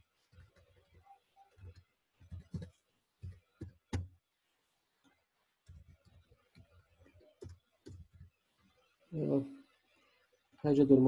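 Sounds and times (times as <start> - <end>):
faint keyboard typing: 0.0 - 4.2, 5.0 - 8.9.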